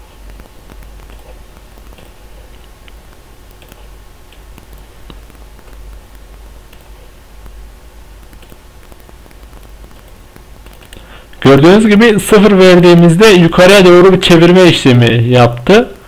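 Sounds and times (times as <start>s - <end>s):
low steady hum: 0.0s - 16.0s
computer keyboard typing: 0.2s - 7.6s, 8.2s - 11.0s
mouse clicks: 1.8s - 6.1s.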